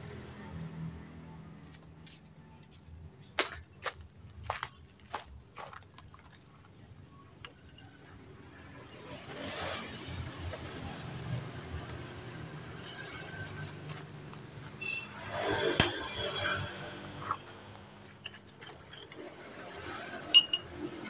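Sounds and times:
metal clinks: 0:07.4 - 0:14.0, 0:18.0 - 0:21.0
socket wrench scraping: 0:07.5 - 0:21.0.

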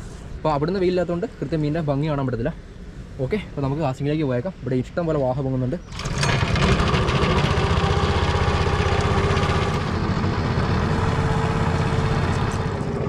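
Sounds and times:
boat motor running: 0:05.9 - 0:13.0.

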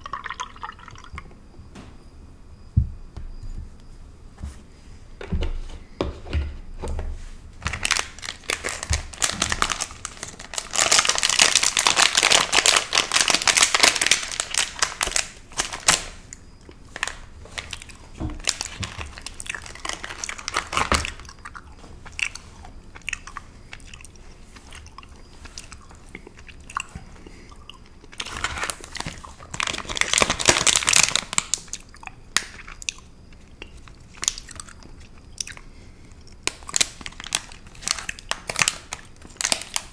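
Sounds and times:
plastic wrappers crinkling: 0:07.6 - 0:32.8, 0:33.4 - 0:39.9
chewing: 0:19.1 - 0:29.6, 0:31.7 - 0:39.1.

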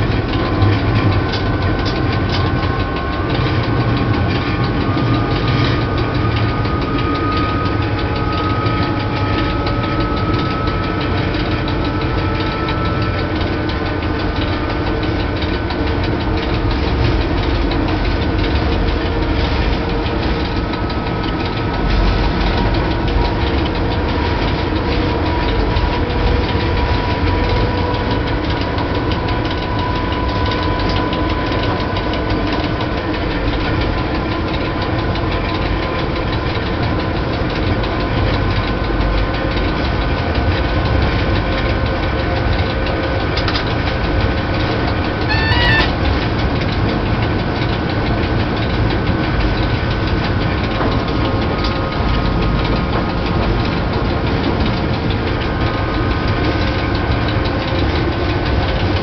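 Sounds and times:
locomotive low rumble: 0:00.0 - 0:59.0
whining traction drive: 0:00.0 - 0:59.0
short electronic beep: 0:45.3 - 0:45.9.

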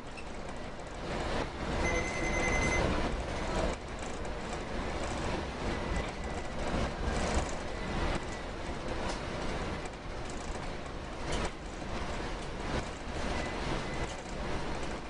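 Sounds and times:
vehicle ride rumble: 0:00.0 - 0:15.0
high steady tone: 0:01.8 - 0:02.9.

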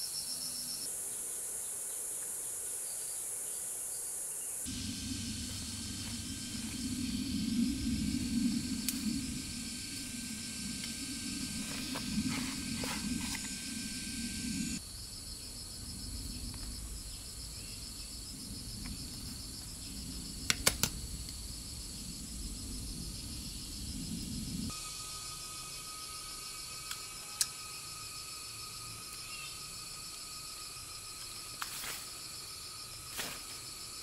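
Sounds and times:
insects chirping: 0:00.0 - 0:34.0
low rushing noise: 0:04.7 - 0:14.8.

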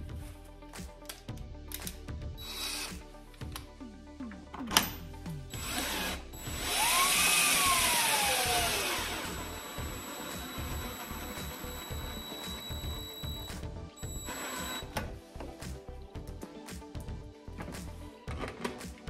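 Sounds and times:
cordless drill driving screw: 0:05.6 - 0:13.5, 0:14.1 - 0:15.0.

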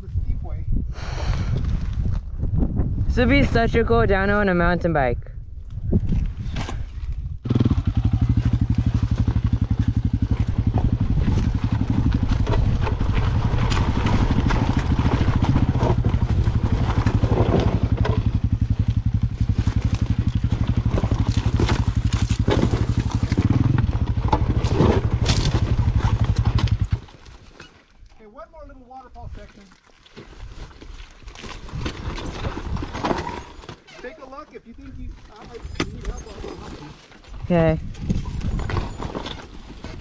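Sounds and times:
dirt bike engine running: 0:07.3 - 0:27.3
tyres clattering over rocks: 0:08.3 - 0:27.9, 0:29.6 - 0:40.0.

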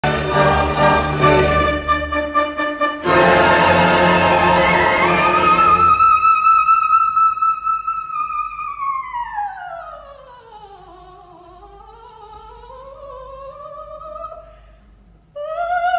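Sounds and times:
orchestra playing loud chords: 0:00.0 - 0:06.0.

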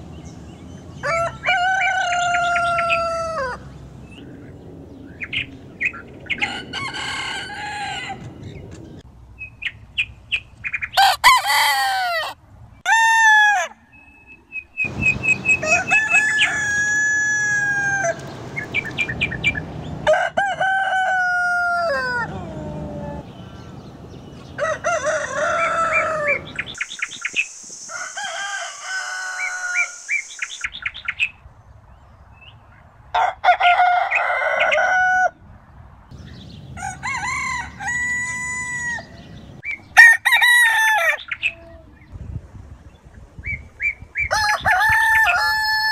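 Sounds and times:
roosters crowing: 0:00.8 - 0:03.8, 0:06.2 - 0:08.6, 0:11.0 - 0:14.0, 0:14.9 - 0:26.8, 0:27.8 - 0:30.4, 0:33.1 - 0:35.4, 0:36.6 - 0:41.8, 0:44.2 - 0:45.9.

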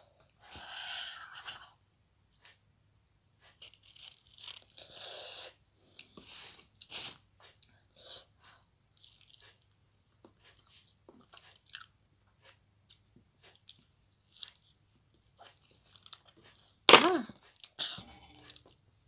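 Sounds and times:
mouth chewing wetly: 0:08.9 - 0:12.0.

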